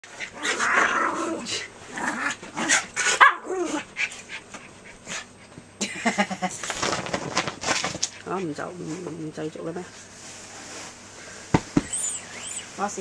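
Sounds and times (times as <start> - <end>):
dogs barking and yipping: 2.7 - 4.5
dog yelping: 11.9 - 12.7.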